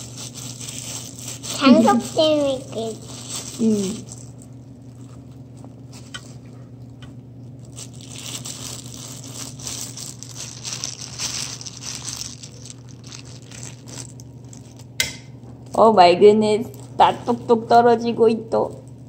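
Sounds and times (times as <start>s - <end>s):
plastic gloves crinkling: 0.0s - 15.8s, 16.5s - 19.0s
steady low hum: 0.0s - 19.0s.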